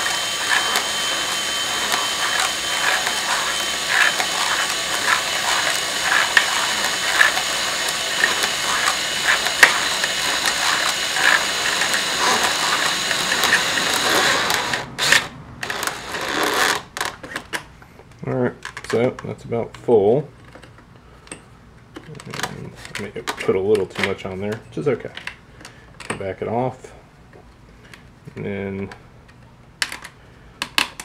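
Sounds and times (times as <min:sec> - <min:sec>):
cordless drill whining: 0:00.0 - 0:17.2.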